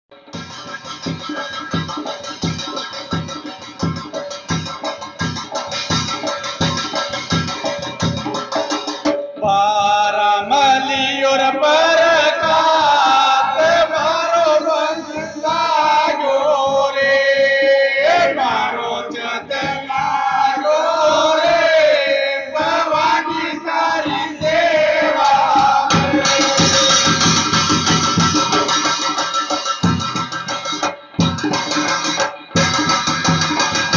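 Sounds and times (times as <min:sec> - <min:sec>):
instrumental backing with drums: 0:00.1 - 0:33.9
person singing devotional song: 0:09.4 - 0:27.5.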